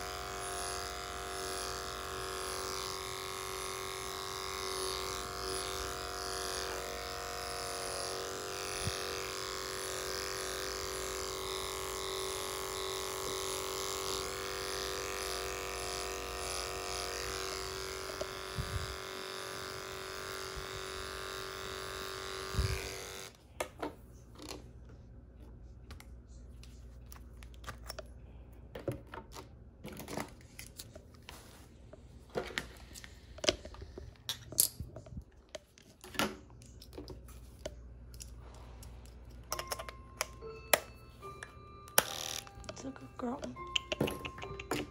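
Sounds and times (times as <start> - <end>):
electric clippers humming: 0.0 - 23.4, 39.5 - 44.9
tools clicking and knocking: 39.3 - 40.8, 43.4 - 44.9.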